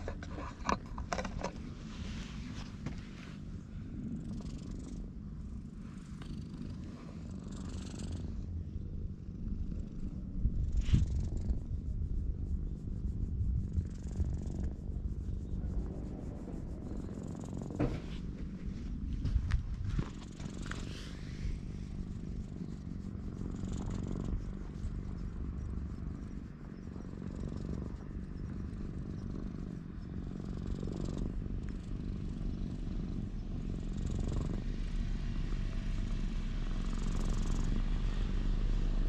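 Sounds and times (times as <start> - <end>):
hand rubbing fur: 0.0 - 4.0, 10.8 - 29.9
cat purring: 0.0 - 39.0.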